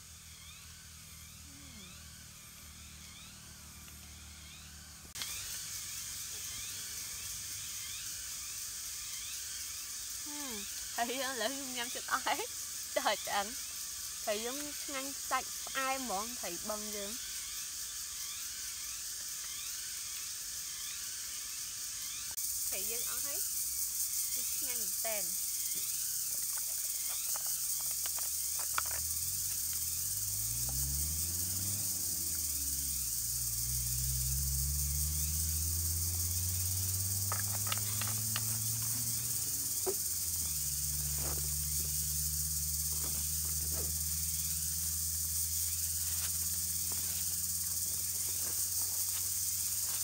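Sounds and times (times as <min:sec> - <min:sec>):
high-pitched insect chorus: 0:00.0 - 0:50.0
low humming drone: 0:28.4 - 0:48.2.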